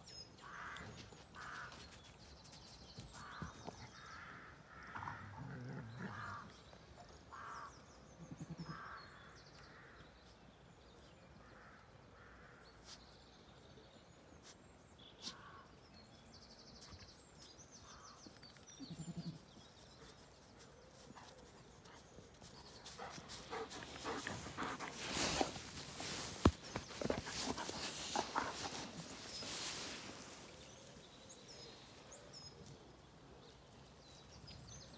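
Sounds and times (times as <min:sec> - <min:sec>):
birds chirping: 0:16.9 - 0:34.9
rustling: 0:23.0 - 0:30.6.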